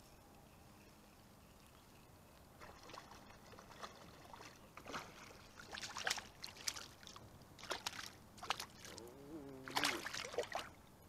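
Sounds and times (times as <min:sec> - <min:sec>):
water splashing beside kayak: 0:02.6 - 0:10.8.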